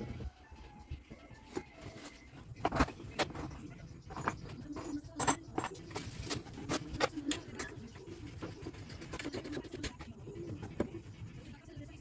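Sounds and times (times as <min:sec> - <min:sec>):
hand tools clicking and knocking: 0:02.6 - 0:07.8.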